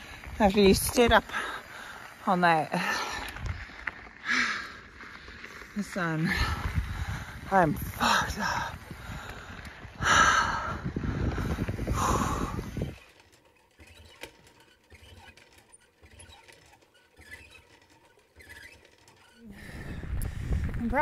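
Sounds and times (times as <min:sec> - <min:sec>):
hard breathing: 0:01.2 - 0:13.0, 0:19.3 - 0:20.8
wind buffeting microphone: 0:06.2 - 0:13.1, 0:19.5 - 0:21.0
hand pump clunking: 0:12.1 - 0:19.5.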